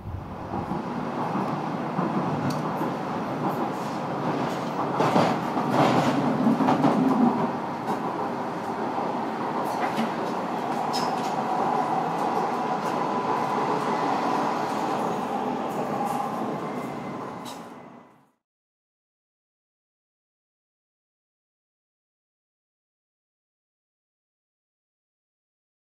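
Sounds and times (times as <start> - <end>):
train rumble: 0.0 - 18.3.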